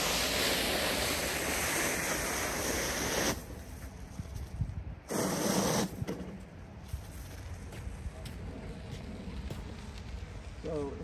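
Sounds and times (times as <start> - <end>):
snow blade scraping asphalt: 0.0 - 4.4, 5.0 - 10.4.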